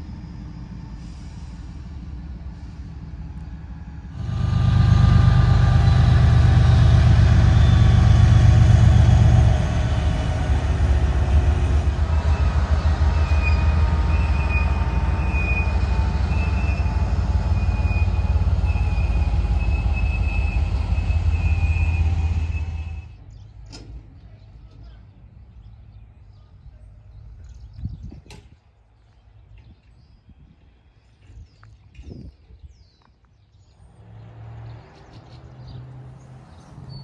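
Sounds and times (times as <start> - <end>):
train cars rolling on rails: 0.0 - 25.9
diesel locomotive engine rumbling: 0.0 - 37.0
high squeal: 4.2 - 23.2.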